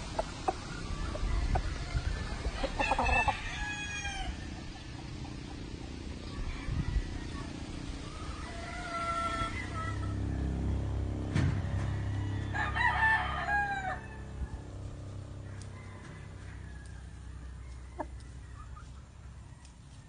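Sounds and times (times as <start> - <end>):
rooster crowing: 0.9 - 4.8, 6.3 - 10.7, 11.6 - 14.6, 15.4 - 18.4.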